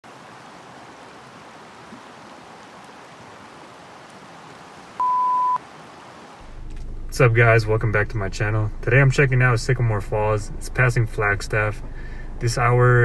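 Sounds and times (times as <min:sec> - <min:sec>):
creek rushing over rocks: 0:00.0 - 0:05.0, 0:05.6 - 0:06.5
loud steady beep: 0:05.0 - 0:05.6.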